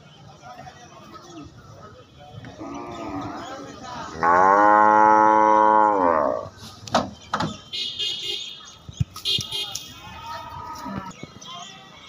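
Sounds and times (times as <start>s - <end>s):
cattle mooing: 4.2s - 6.5s.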